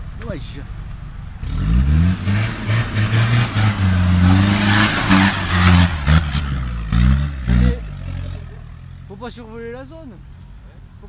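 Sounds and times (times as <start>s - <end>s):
engine revving: 1.4s - 9.2s
tyres in mud: 1.6s - 8.9s.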